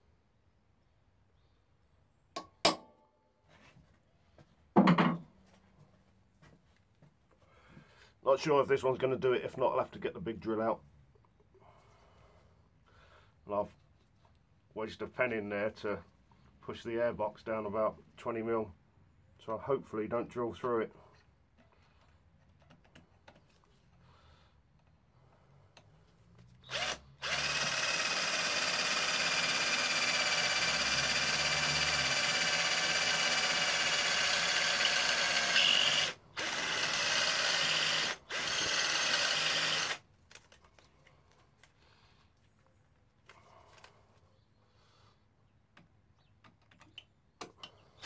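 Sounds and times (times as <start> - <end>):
cordless drill whining: 26.6 - 40.1.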